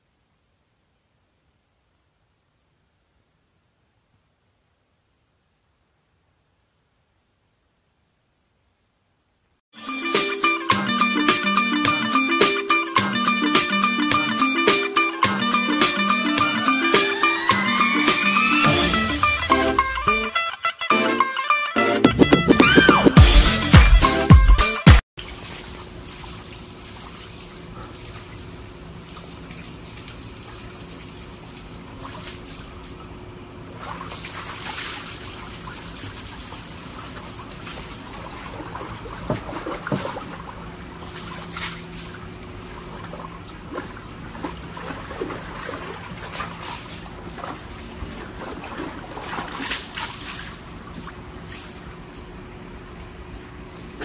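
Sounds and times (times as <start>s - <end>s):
small water splashes: 25.2s - 52.4s
water sloshing in a plastic tub: 25.2s - 54.0s.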